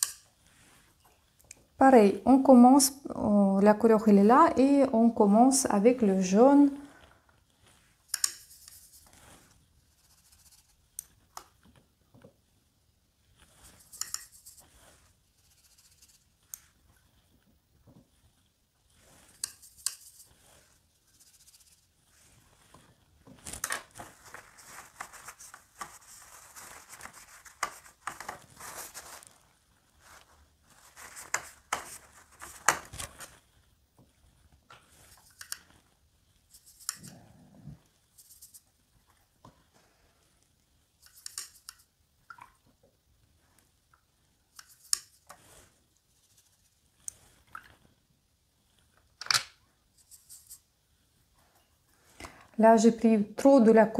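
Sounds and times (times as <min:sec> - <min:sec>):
brush swishing paint in palette: 0:00.0 - 0:01.4, 0:06.0 - 0:11.8, 0:13.2 - 0:37.2, 0:37.9 - 0:42.0, 0:44.6 - 0:48.0, 0:49.9 - 0:51.2.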